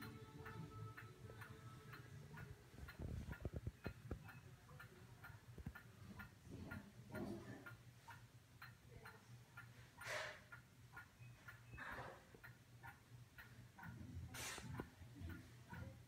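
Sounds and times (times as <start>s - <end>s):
faint regular ticking: 0.0s - 16.0s.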